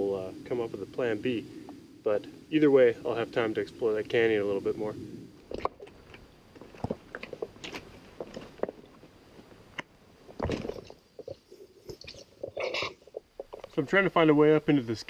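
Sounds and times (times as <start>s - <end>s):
footsteps on gravel: 5.5s - 9.6s.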